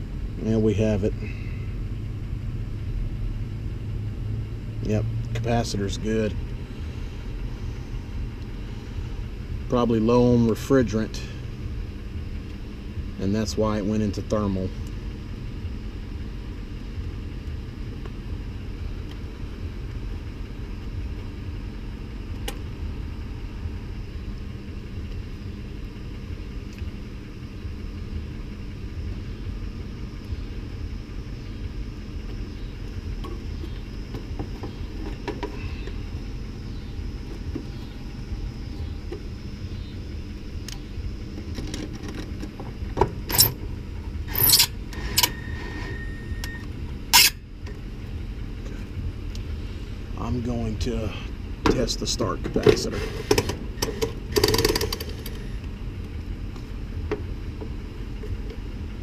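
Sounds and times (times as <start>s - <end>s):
steady low rumble: 0.0s - 59.0s
metallic clicks and clatters: 53.4s - 55.3s.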